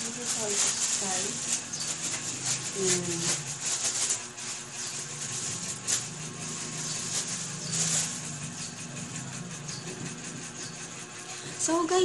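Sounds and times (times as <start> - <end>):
rustling handling noise: 0.0 - 9.3.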